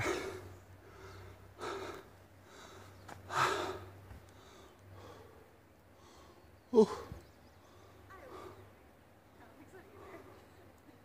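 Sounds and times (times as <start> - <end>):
person breathing hard: 0.0 - 6.4.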